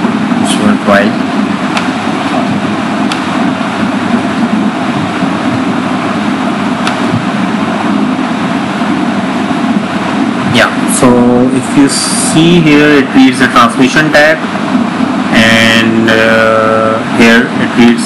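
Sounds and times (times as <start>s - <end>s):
fan-like hum and hiss: 0.0s - 18.0s.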